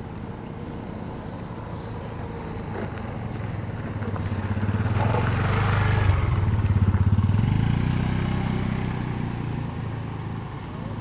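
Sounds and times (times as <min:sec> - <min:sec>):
small motor engine running: 0:02.0 - 0:10.9.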